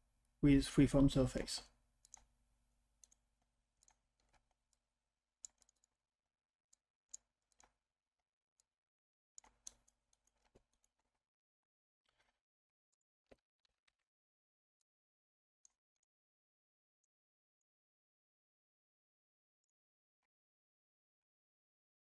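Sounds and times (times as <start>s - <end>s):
computer mouse clicks: 2.0s - 2.3s, 3.0s - 3.2s, 3.8s - 4.8s, 5.4s - 6.0s, 6.7s - 7.8s, 9.4s - 11.0s.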